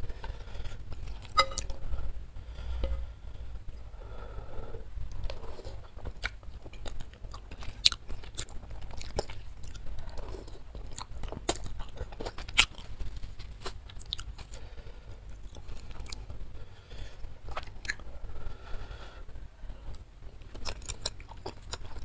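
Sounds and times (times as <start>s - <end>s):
chewing with wet mouth clicks: 5.1s - 14.6s, 15.3s - 16.3s, 17.5s - 18.0s, 19.9s - 22.0s.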